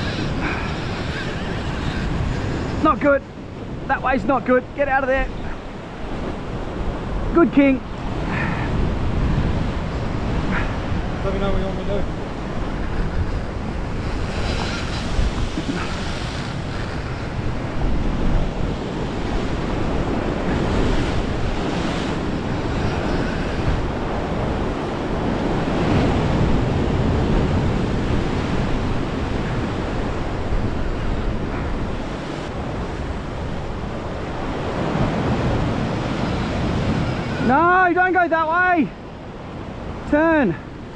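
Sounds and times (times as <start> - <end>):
wind buffeting microphone: 0.0 - 37.8.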